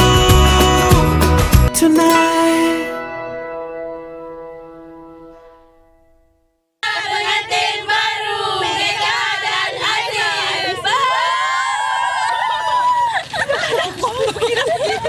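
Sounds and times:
music chord ringing out: 0:01.7 - 0:06.7
people shouting and cheering: 0:06.8 - 0:13.8.

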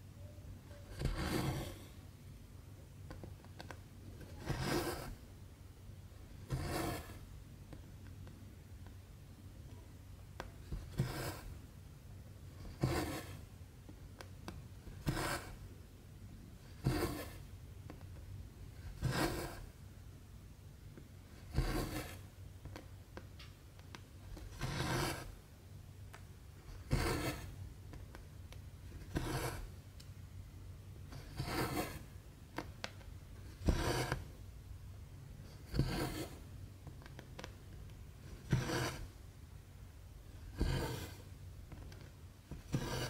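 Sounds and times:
thread rasping through cloth: 0:40.4 - 0:41.2, 0:42.5 - 0:43.0.

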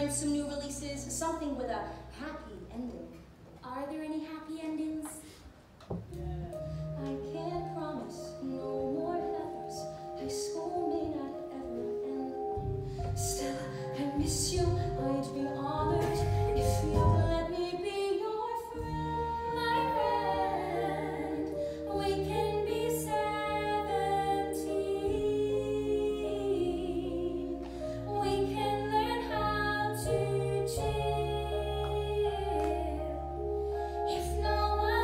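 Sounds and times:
woman singing: 0:07.0 - 0:33.4, 0:34.0 - 0:35.0.

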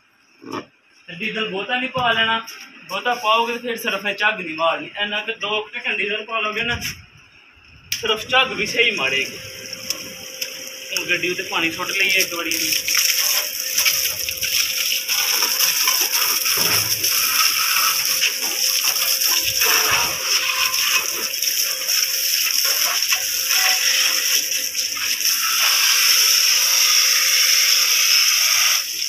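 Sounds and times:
hose spraying water: 0:07.9 - 0:29.0
water splashing on concrete: 0:09.0 - 0:25.4.

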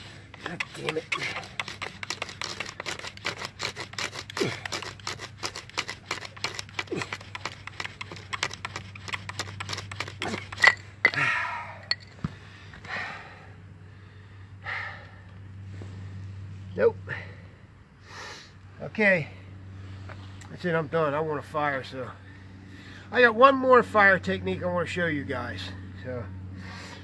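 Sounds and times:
heavy breathing: 0:00.0 - 0:01.6, 0:10.1 - 0:18.6.

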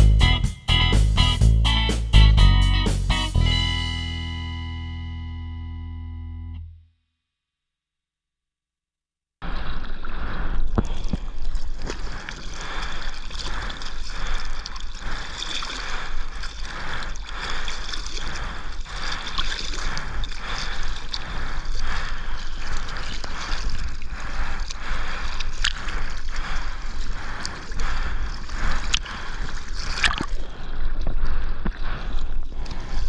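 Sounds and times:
paddling splashes: 0:09.5 - 0:33.0
water sloshing over surfboard: 0:09.5 - 0:33.0.

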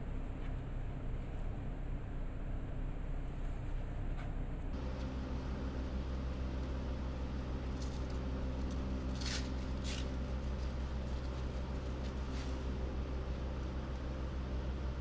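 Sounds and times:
low machinery hum: 0:00.0 - 0:15.0.

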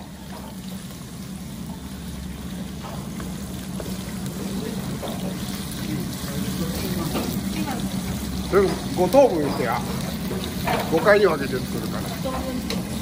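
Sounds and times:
pork frying in a wok: 0:00.0 - 0:13.0.

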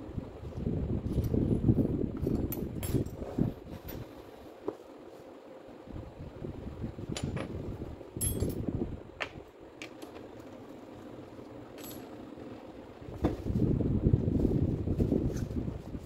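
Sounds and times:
metal parts clinking: 0:08.2 - 0:08.6, 0:11.7 - 0:12.2.

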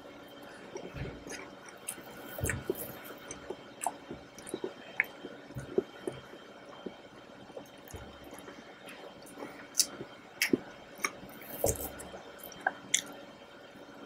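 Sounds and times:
wet chewing mouth sounds: 0:00.7 - 0:13.2
sharp mouth clicks and smacks: 0:00.8 - 0:07.0, 0:09.3 - 0:13.1.

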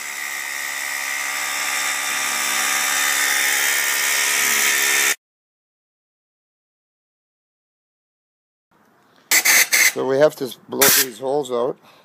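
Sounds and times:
hammer drill boring into concrete: 0:00.0 - 0:05.2, 0:09.3 - 0:10.0.

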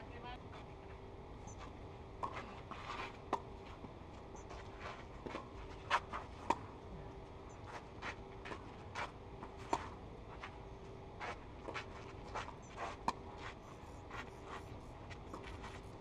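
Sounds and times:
shoes scuffing on clay court: 0:01.6 - 0:03.8, 0:04.5 - 0:06.6, 0:07.7 - 0:10.6, 0:11.2 - 0:16.0.

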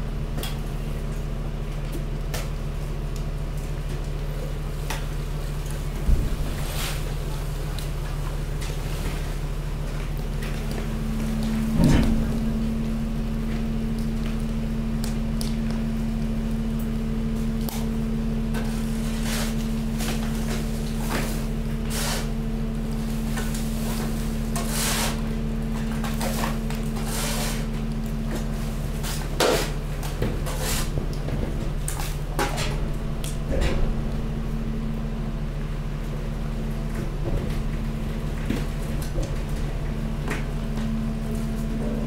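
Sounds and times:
hydraulic press humming: 0:10.9 - 0:14.8, 0:29.7 - 0:42.0
waste crackling and snapping: 0:12.8 - 0:18.0.

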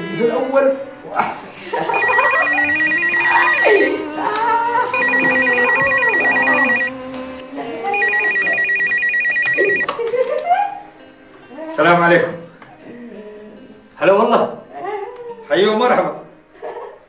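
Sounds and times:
soft background music: 0:00.0 - 0:17.0
telephone electronic trilling ring: 0:01.9 - 0:04.0, 0:04.9 - 0:06.9, 0:07.9 - 0:09.9.

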